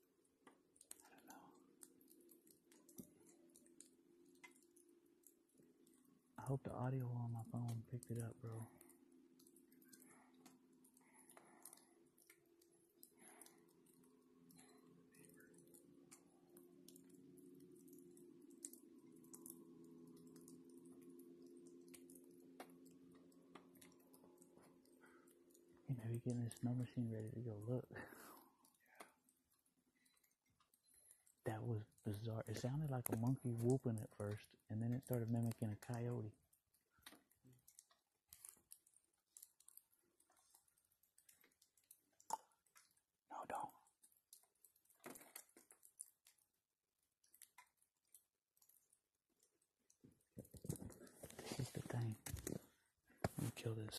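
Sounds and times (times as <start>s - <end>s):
faint low hum: 0.0s - 41.5s, 50.1s - 53.9s
faint irregular clicks and crackles: 0.0s - 53.9s.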